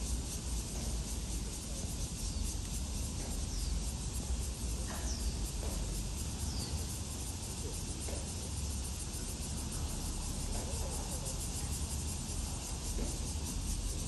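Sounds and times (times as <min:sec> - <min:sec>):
high insect hum: 0:00.0 - 0:14.0
faint knocks: 0:03.0 - 0:06.9, 0:07.6 - 0:08.6, 0:12.9 - 0:13.4.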